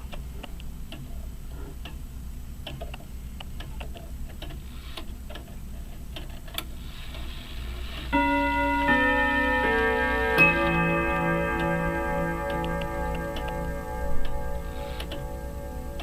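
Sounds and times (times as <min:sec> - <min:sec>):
irregular clock mechanism clicks: 0:00.0 - 0:02.0, 0:02.6 - 0:07.3, 0:12.4 - 0:15.4
clock ticking: 0:08.2 - 0:16.0.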